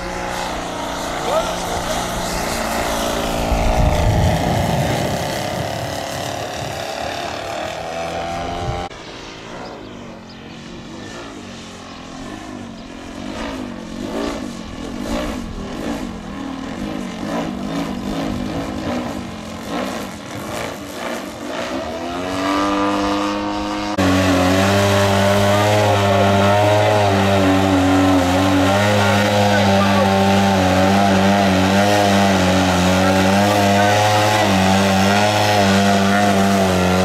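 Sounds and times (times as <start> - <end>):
model airplane motor and propeller: 0.0 - 37.0.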